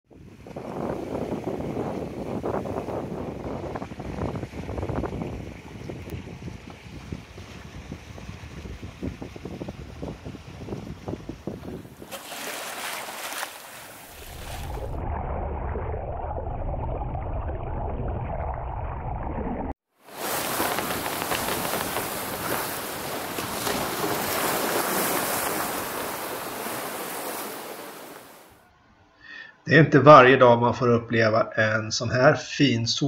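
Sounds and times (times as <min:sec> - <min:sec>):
rushing sea water: 0:00.1 - 0:15.0, 0:19.9 - 0:28.6
wind: 0:00.1 - 0:16.8, 0:19.9 - 0:29.2
muffled underwater water noise: 0:11.6 - 0:28.6.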